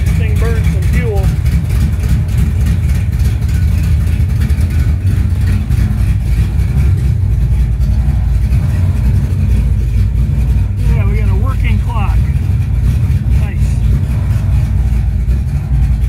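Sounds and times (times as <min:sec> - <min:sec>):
car engine idling: 0:00.0 - 0:16.0.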